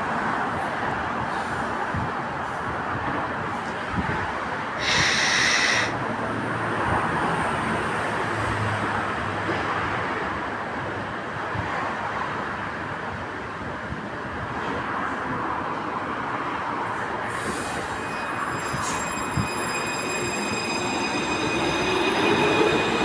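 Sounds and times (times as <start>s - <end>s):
train running hum: 0.0s - 23.0s
high buzzing warning tone: 17.9s - 23.0s.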